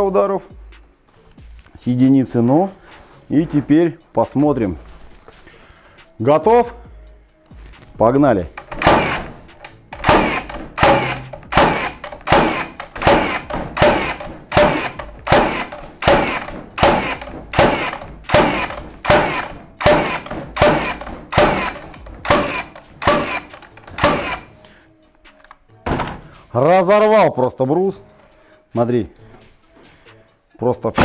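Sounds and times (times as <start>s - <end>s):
nail gun firing into wood: 8.6s - 24.5s.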